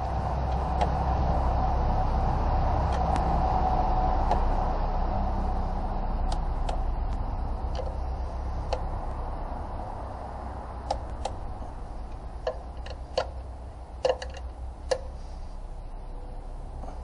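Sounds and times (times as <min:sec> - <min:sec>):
low steady hum: 0:00.0 - 0:17.0
ratchet wrench clicking: 0:14.0 - 0:15.1.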